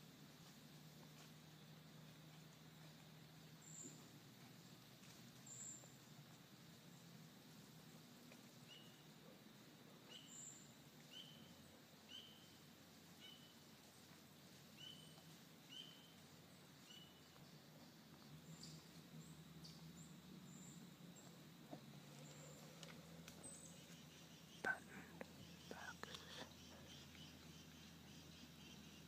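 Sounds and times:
thin high bird calls: 10.0s - 13.6s, 14.7s - 16.2s.

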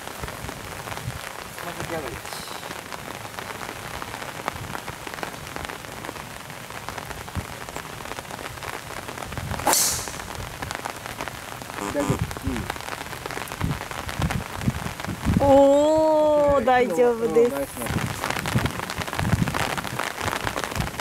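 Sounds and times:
rain pattering: 0.0s - 21.0s
golf driver striking ball: 9.6s - 10.4s.

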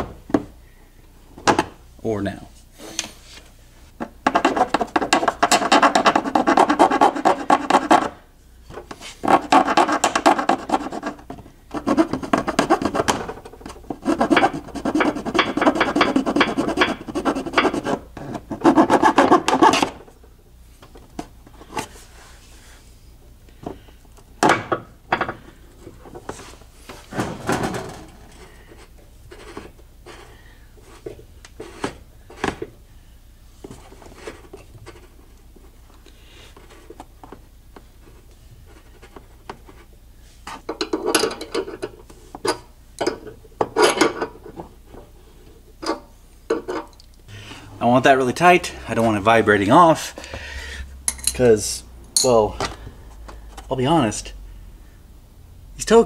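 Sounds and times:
hand file rasping on plastic: 4.4s - 8.2s, 9.2s - 13.3s, 13.9s - 19.8s.

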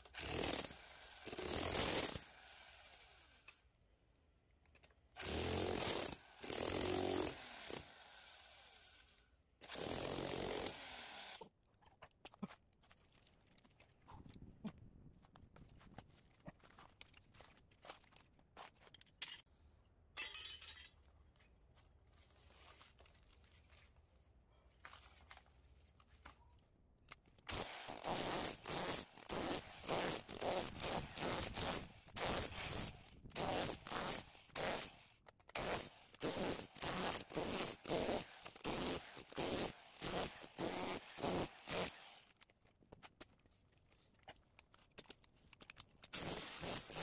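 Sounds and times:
hammer drill chiselling metal: 0.2s - 2.3s, 5.2s - 7.9s, 9.6s - 11.4s, 27.5s - 42.0s, 46.1s - 47.0s
metal tubes clicking and scraping: 18.9s - 19.5s, 20.2s - 21.0s, 44.4s - 47.0s.

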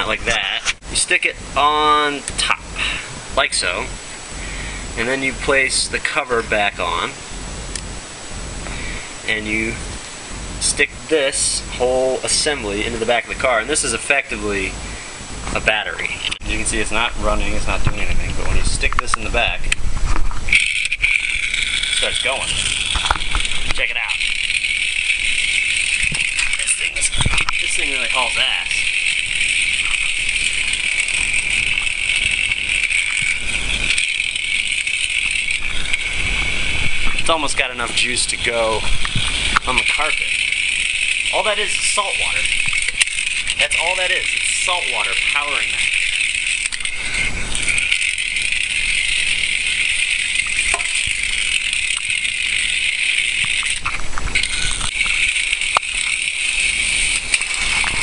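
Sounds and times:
small electric motor whining: 20.4s - 58.0s
sharp clicks: 38.9s - 58.0s.

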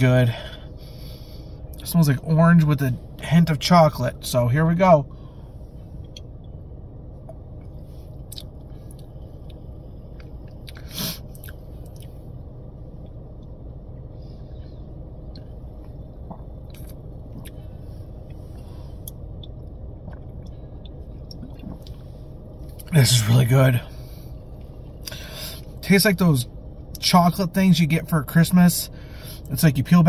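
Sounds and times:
low rumble inside a car: 0.0s - 30.0s
man swallowing a drink: 16.2s - 17.6s, 21.2s - 22.0s.

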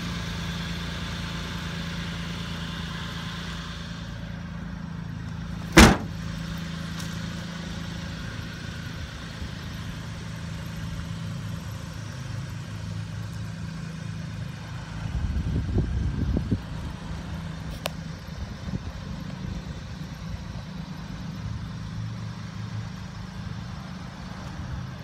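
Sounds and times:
truck engine idling: 0.0s - 25.0s
door slam: 5.7s - 6.2s.

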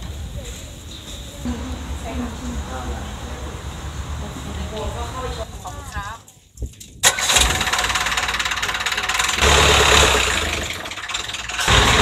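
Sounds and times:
wind noise: 0.0s - 10.4s
small boat engine running: 7.3s - 12.0s.

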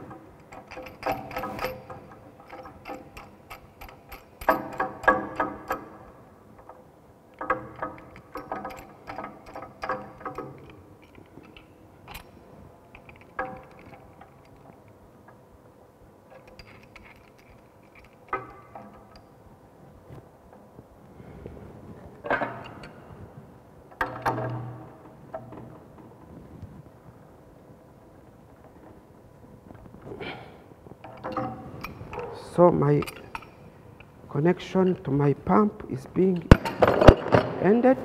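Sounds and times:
pipe wrench metallic clicks: 0.1s - 15.4s, 31.0s - 32.3s, 33.0s - 34.1s.

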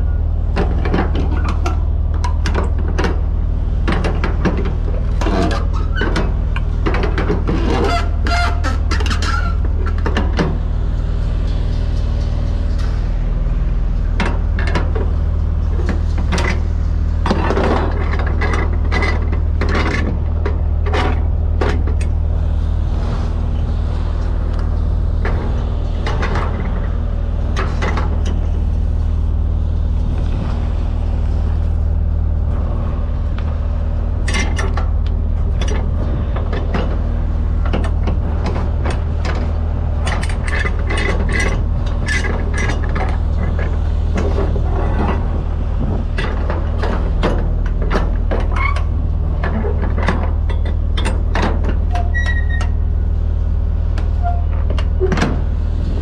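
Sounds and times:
metallic winch clicks and clanks: 34.2s - 52.8s.

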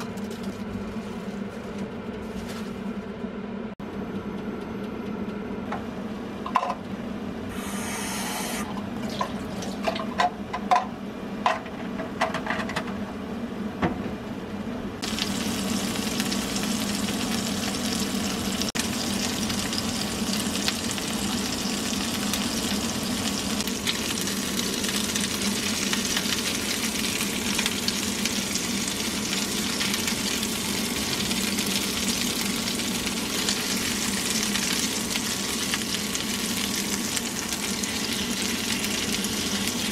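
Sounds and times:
patties sizzling in a frying pan: 15.0s - 39.9s.

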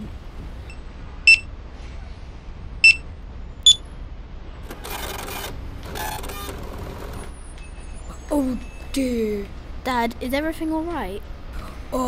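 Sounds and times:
keypad beeps: 2.8s - 3.0s.

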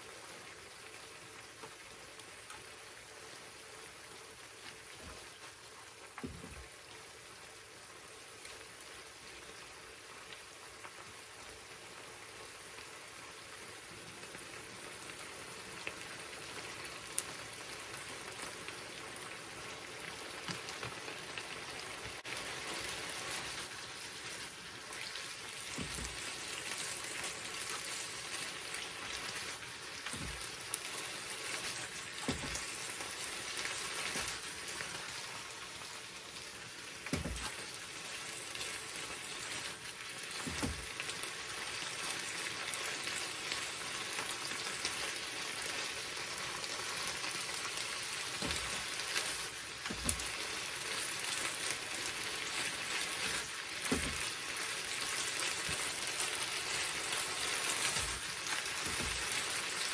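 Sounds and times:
sauce sizzling and bubbling in a pan: 0.0s - 59.9s.

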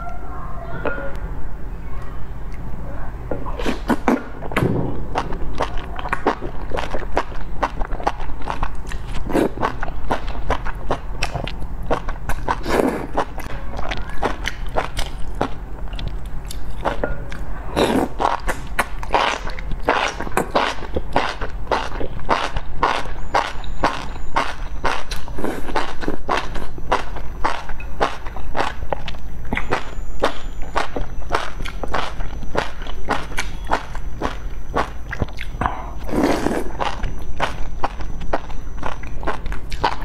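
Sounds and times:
steady low hum: 0.0s - 40.0s
person slurping noodles: 3.5s - 4.3s, 7.6s - 9.8s, 12.5s - 13.3s, 17.7s - 20.9s, 35.6s - 37.0s
chewing: 3.5s - 40.0s
wet mouth clicks: 5.2s - 40.0s.

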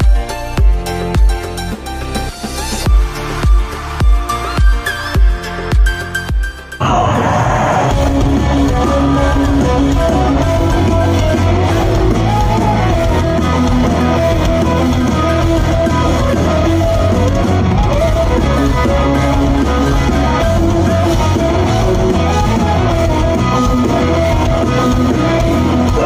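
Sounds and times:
live rock band playing: 7.8s - 26.0s.

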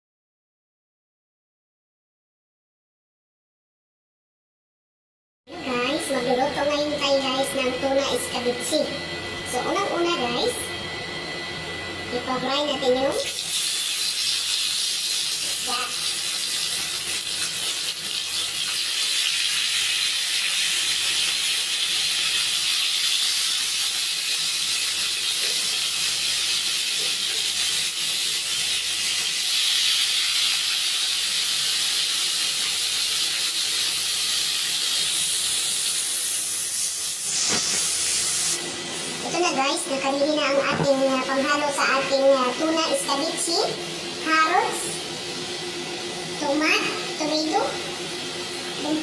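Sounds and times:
fish sizzling in hot oil: 13.2s - 38.7s.

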